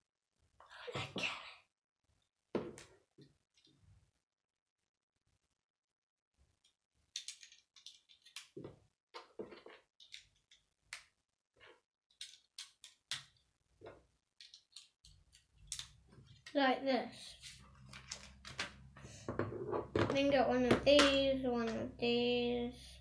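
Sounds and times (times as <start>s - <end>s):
plastic bricks clicking and snapping: 7.1s - 8.6s, 12.1s - 13.4s, 14.4s - 16.0s.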